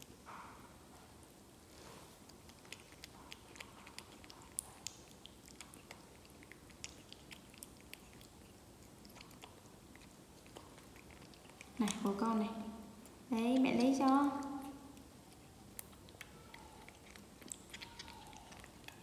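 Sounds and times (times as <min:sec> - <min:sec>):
monkey chewing wet smacking: 0:02.2 - 0:19.0.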